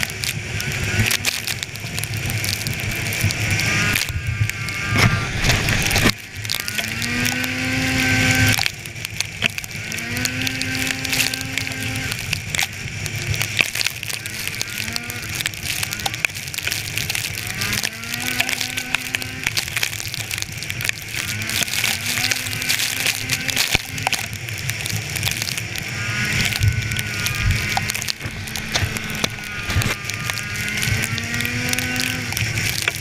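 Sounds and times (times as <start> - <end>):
snowmobile engine running: 0.0 - 33.0
wind on microphone: 26.0 - 33.0.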